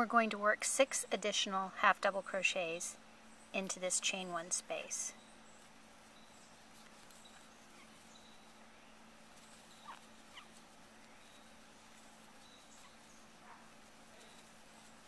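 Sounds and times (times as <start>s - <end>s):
low steady hum: 0.0s - 15.0s
faint high squeaks: 12.4s - 14.8s.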